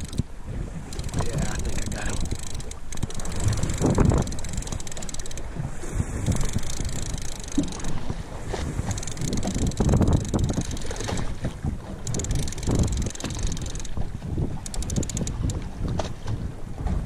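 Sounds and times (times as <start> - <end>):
wind buffeting the microphone: 0.0 - 17.0.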